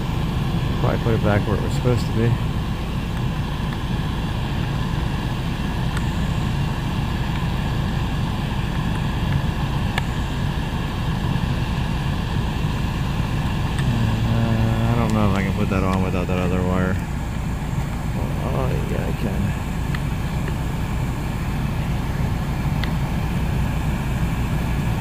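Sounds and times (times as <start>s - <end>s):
blower fan running: 0.0s - 25.0s
car engine idling: 0.0s - 25.0s
dash trim clicks: 5.8s - 6.2s, 7.2s - 7.5s, 8.6s - 10.2s, 14.9s - 18.1s, 19.8s - 20.7s, 22.7s - 23.1s.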